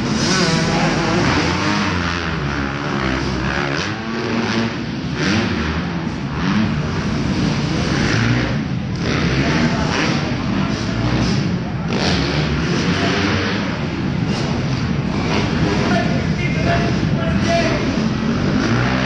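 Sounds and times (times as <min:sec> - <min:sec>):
dirt bike engines revving: 0:00.0 - 0:19.0.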